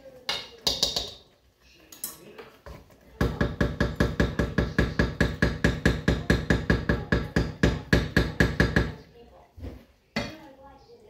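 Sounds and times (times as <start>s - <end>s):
wooden spoon knocking metal pot: 0.2s - 1.4s, 2.0s - 9.0s.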